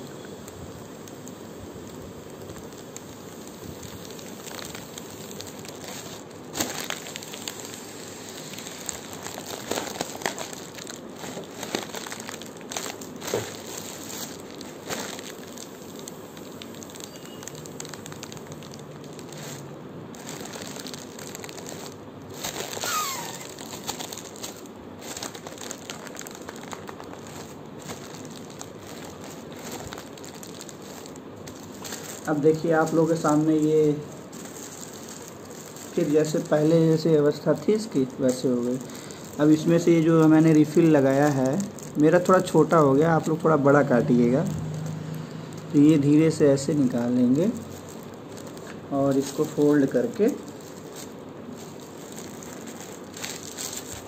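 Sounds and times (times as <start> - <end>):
foil balloon crinkling: 0.0 - 54.0
air hissing out: 7.5 - 8.8, 22.8 - 23.8.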